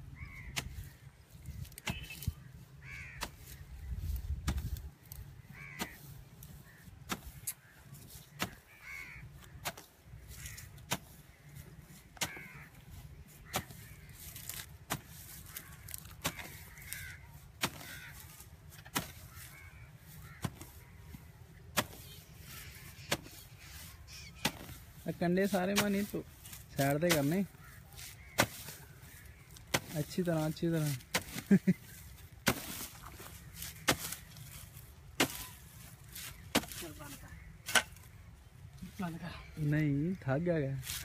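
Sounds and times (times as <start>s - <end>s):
hoe chopping into dry soil: 0.5s - 0.9s, 3.0s - 4.8s, 5.6s - 8.7s, 9.4s - 11.2s, 12.1s - 12.7s, 13.3s - 22.1s, 23.1s - 23.4s, 24.4s - 37.0s, 37.6s - 38.1s.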